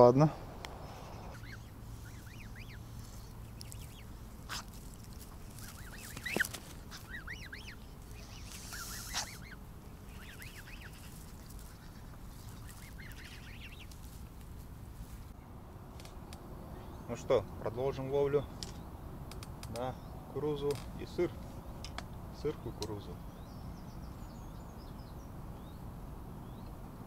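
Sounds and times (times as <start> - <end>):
goslings peeping: 0.6 - 15.3
goose call: 0.9 - 4.7, 5.6 - 13.9.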